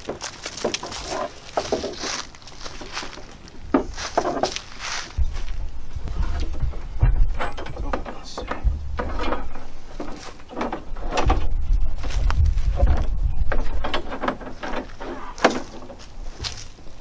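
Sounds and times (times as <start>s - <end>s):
low rumble: 5.1s - 14.2s.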